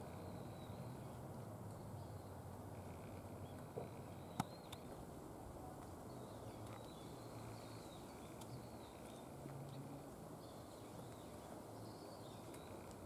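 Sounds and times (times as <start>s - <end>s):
bird chirps: 3.4s - 5.0s.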